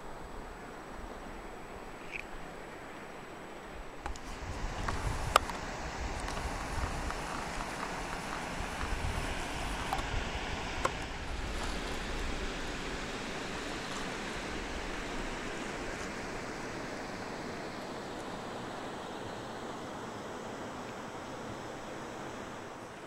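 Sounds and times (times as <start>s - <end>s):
water lapping against canoe: 4.2s - 16.8s.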